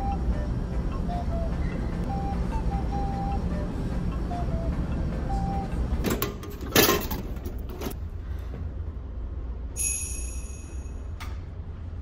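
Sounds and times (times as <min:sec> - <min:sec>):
ferry engines humming: 0:00.0 - 0:12.0
high ringing tone: 0:09.8 - 0:11.2.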